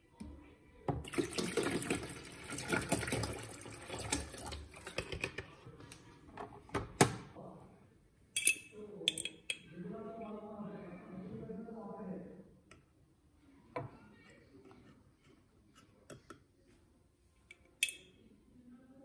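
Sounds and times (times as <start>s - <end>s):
water pouring into tank: 1.0s - 5.3s.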